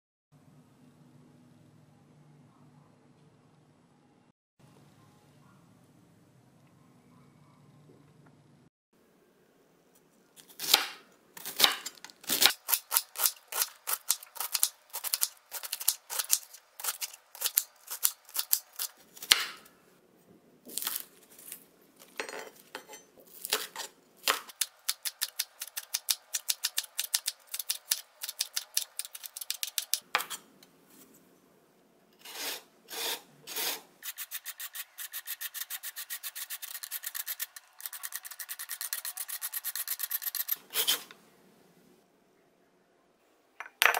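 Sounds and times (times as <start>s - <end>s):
knife chopping on wooden board: 19.2s - 19.6s.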